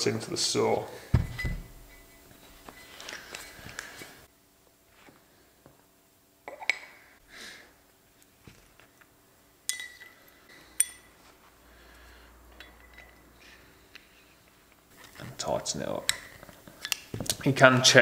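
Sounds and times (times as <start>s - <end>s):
metal clinking: 1.0s - 3.6s, 9.6s - 11.3s, 12.5s - 13.8s.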